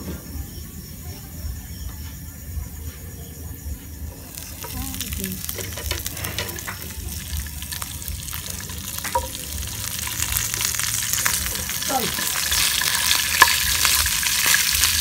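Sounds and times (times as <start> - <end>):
garlic sizzling in oil: 4.1 - 15.0.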